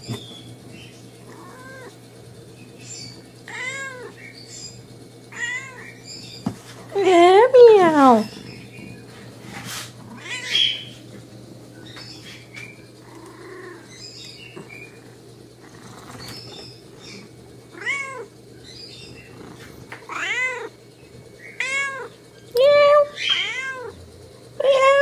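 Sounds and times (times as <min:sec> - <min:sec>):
cat meowing: 0:01.3 - 0:02.0, 0:03.5 - 0:04.2, 0:05.3 - 0:06.0, 0:10.1 - 0:10.9, 0:17.7 - 0:18.3, 0:20.0 - 0:20.7, 0:21.5 - 0:24.0.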